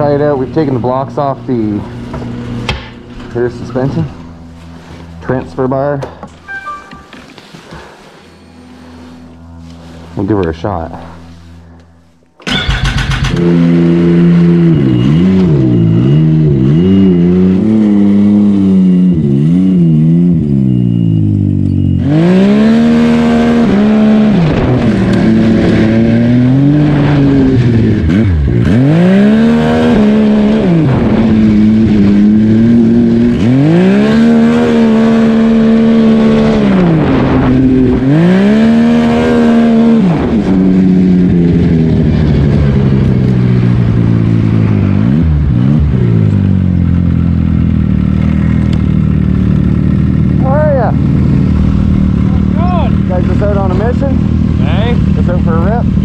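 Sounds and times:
snowmobile engine revving: 12.5s - 56.0s.

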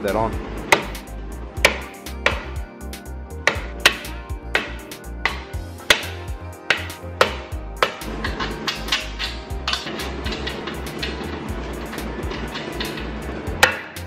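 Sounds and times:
background music: 0.0s - 14.0s
hammer knocking on wooden board: 0.7s - 1.0s, 1.6s - 2.6s, 3.5s - 8.0s.

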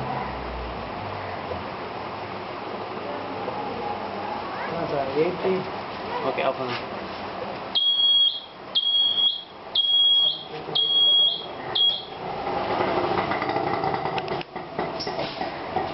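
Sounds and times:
electronic buzzer beeps: 7.8s - 12.2s.

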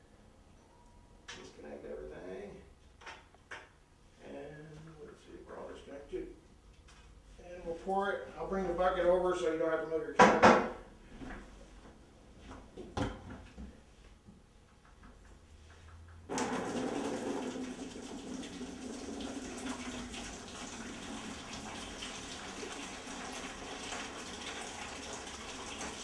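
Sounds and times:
water pouring into plastic bucket: 16.3s - 26.0s.

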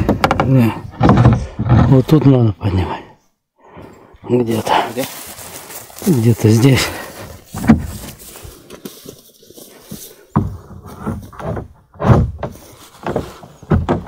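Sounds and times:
pole knocking wooden boat hull: 0.0s - 1.9s, 10.4s - 14.0s.

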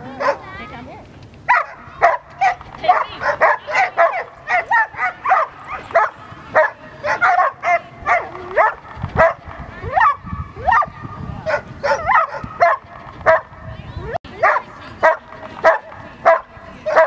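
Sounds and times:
dog barking in high yips: 1.5s - 9.4s, 10.0s - 13.5s.

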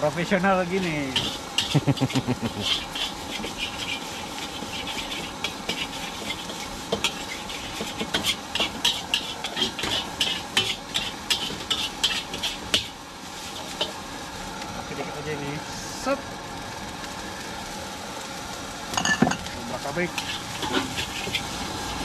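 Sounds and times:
steady hiss: 0.0s - 22.0s
metal spatula scraping wok: 0.8s - 14.0s, 20.0s - 22.0s.

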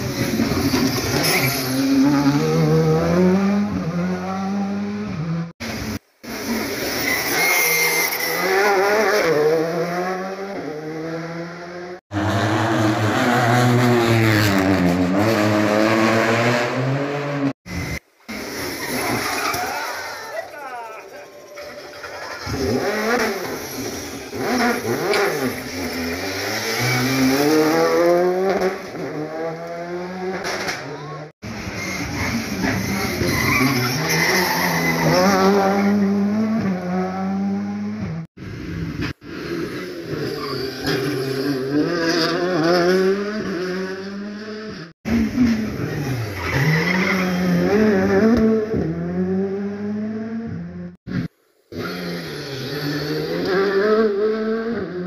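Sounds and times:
rally car engine revving: 0.0s - 18.0s, 22.1s - 55.0s.

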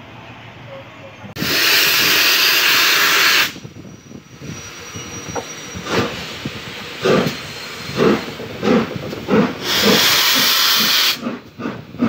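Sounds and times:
steam puff: 1.4s - 3.6s, 7.0s - 12.0s
loud hiss of locomotive steam: 1.4s - 12.0s.

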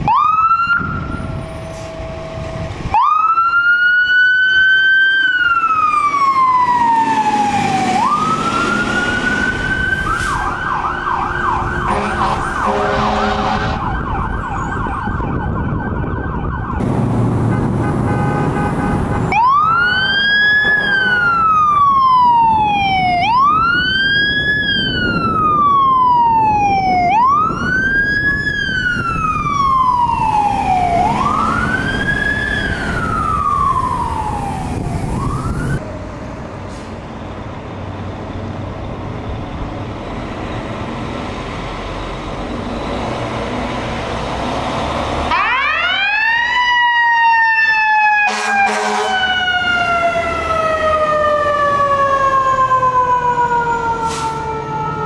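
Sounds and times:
vehicle engine rumble: 0.0s - 3.2s, 5.4s - 46.0s
electronic siren wailing and yelping: 0.0s - 16.8s, 19.3s - 35.8s, 45.3s - 55.0s.

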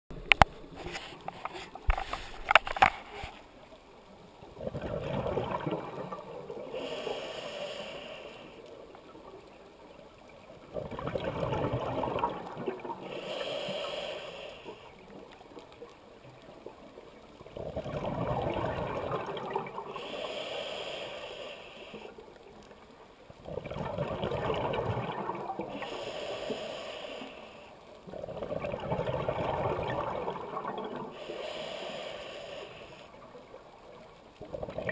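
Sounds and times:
scuba regulator breathing: 0.3s - 3.6s, 6.6s - 8.8s, 13.0s - 15.0s, 19.9s - 22.2s, 25.6s - 27.9s, 31.1s - 33.2s
bubbles gurgling: 4.4s - 6.6s, 10.6s - 13.1s, 17.4s - 20.0s, 23.4s - 25.8s, 28.1s - 31.2s, 34.4s - 34.9s.

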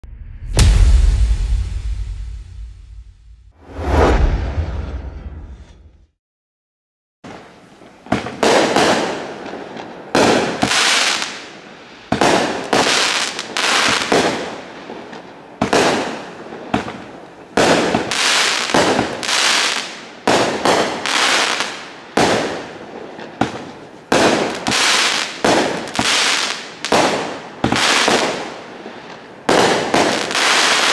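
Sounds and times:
firework bangs: 8.1s - 11.4s, 17.6s - 28.6s, 29.2s - 30.9s.

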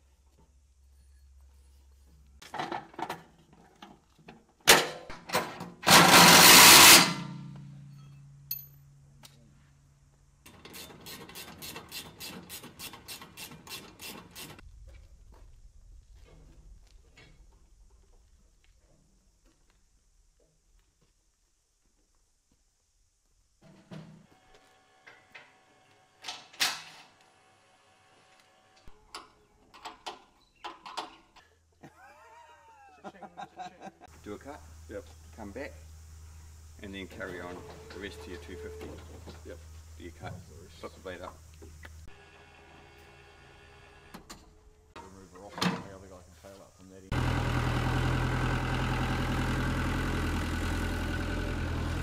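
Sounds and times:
sharp burst: 5.8s - 7.4s
hand tool clicks and metallic knocks: 7.4s - 9.4s.

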